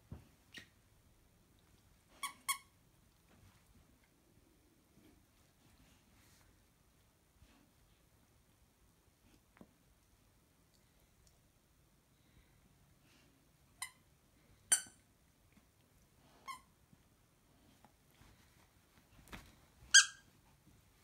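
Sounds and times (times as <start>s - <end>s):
dog toy squeaking: 19.9s - 20.3s.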